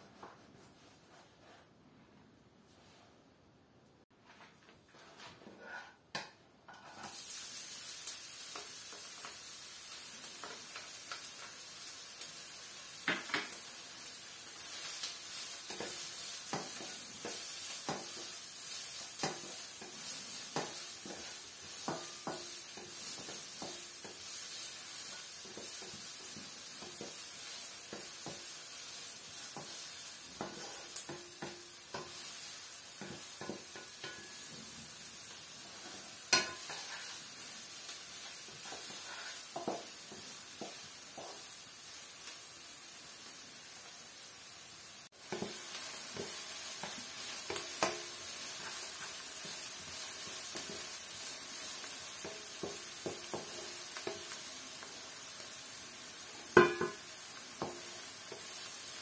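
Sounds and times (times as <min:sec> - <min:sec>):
wooden spatula scraping a pan: 0:00.0 - 0:01.8, 0:04.2 - 0:06.1, 0:06.7 - 0:07.3, 0:14.6 - 0:41.7, 0:45.2 - 0:55.2
onion sizzling in hot oil: 0:06.7 - 0:59.0.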